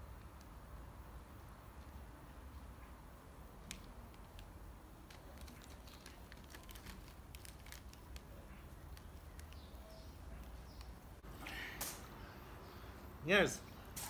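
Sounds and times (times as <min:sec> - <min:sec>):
crisp packet crinkling: 0:03.7 - 0:09.8
crisps crunching: 0:05.0 - 0:09.7
faint bird chirps: 0:08.4 - 0:13.0.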